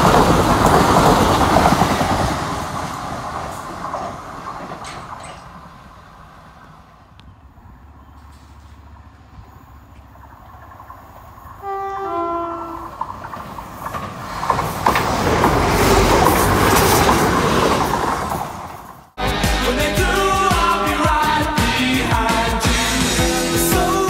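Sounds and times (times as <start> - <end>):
train wheels rushing on rail: 0.0 - 19.2
train two-tone horn: 11.6 - 13.1.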